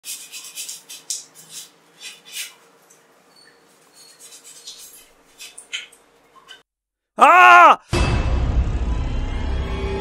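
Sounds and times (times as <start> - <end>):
dishes rubbing and clinking: 0.0 - 6.7.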